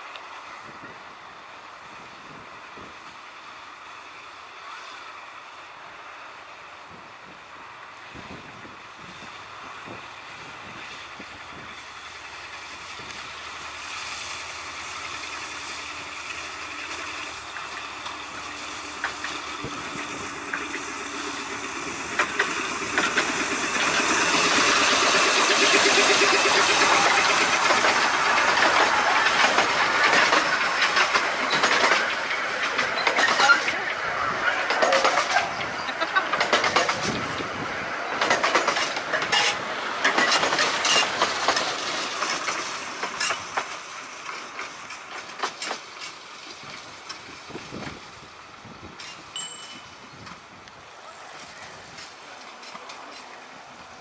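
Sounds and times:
miniature train passing: 0.0s - 54.0s
carriages rattling and clicking: 16.2s - 54.0s.

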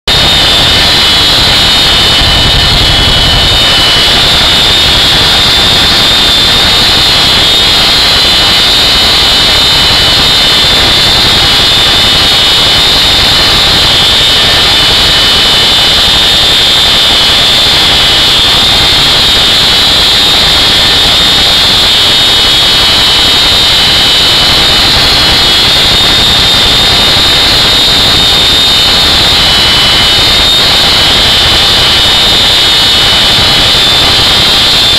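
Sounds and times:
high-pitched whine: 0.0s - 34.9s
helicopter rotors and engines: 0.1s - 34.9s.

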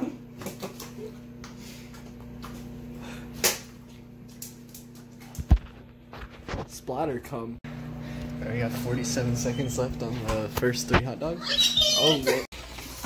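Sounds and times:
microwave oven humming: 0.0s - 13.0s.

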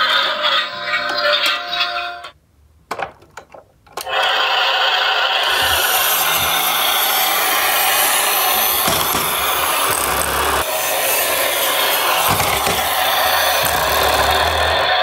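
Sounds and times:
toy truck rolling on wood: 5.4s - 15.0s.

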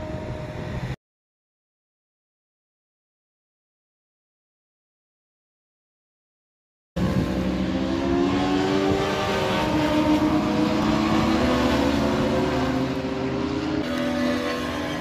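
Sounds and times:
race car engines: 0.0s - 1.0s, 7.0s - 15.0s.

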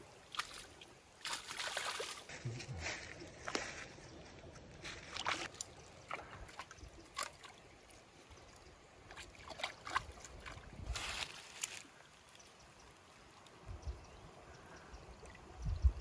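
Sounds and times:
water trickling over stones: 0.0s - 14.2s
hands splashing in water: 0.3s - 2.3s.

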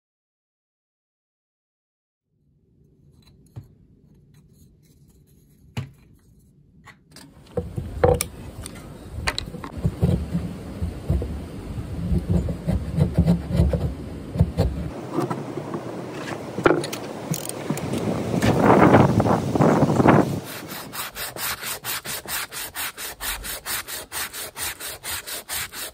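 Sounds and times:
wood knocking and scraping: 7.4s - 11.4s, 12.0s - 19.0s
wind rumbling on microphone: 7.6s - 21.1s
rasping noise: 19.6s - 25.9s.

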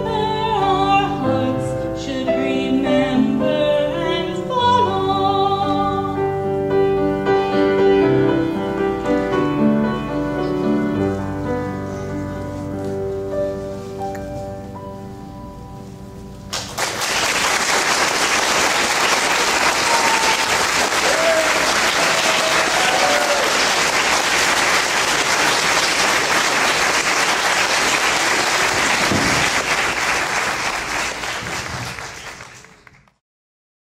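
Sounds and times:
piano chord: 0.0s - 16.9s
audience applause: 16.5s - 33.2s
shouts of approval: 19.4s - 23.8s.

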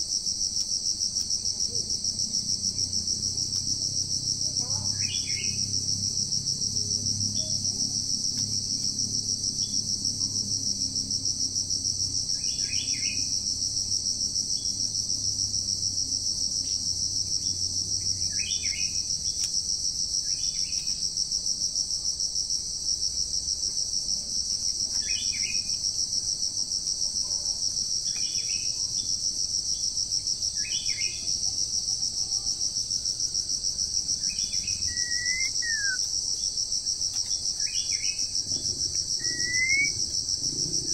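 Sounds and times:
shrill drone of insects: 0.0s - 40.9s
short bird calls: 34.9s - 36.0s.

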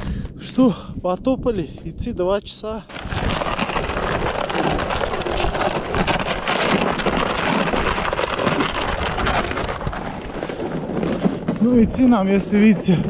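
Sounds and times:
plastic sled scraping over snow: 2.8s - 13.0s
footsteps crunching in snow: 2.9s - 13.0s.

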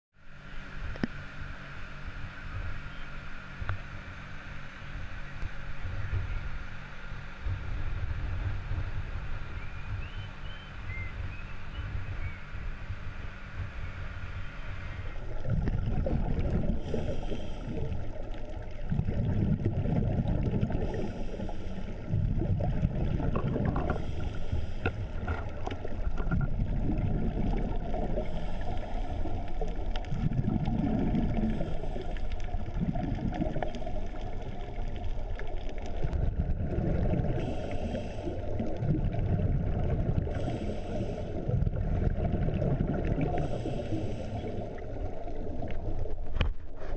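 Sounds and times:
steady hum on boat deck: 0.2s - 32.9s, 36.2s - 38.8s, 39.8s - 42.2s, 43.2s - 45.3s
muffled underwater rumble: 0.2s - 46.9s
diver exhaling bubbles: 15.0s - 46.9s.

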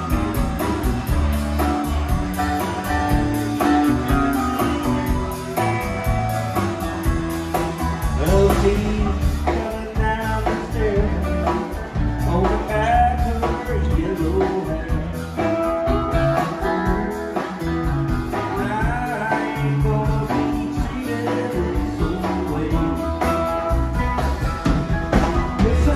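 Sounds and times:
live band playing: 0.0s - 25.9s.

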